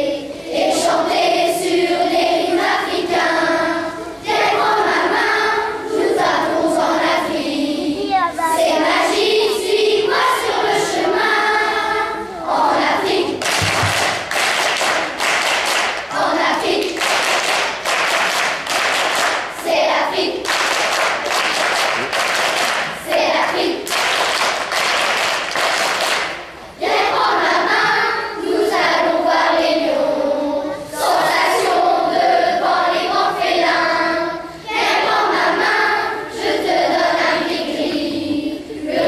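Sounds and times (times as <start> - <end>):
children's choir singing: 0.0 - 39.0
rhythmic hand claps: 13.0 - 27.0.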